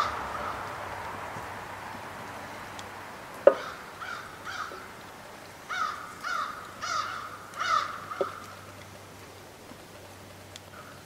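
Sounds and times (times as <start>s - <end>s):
crow cawing: 0.0s - 0.7s, 3.5s - 4.9s, 5.7s - 8.6s.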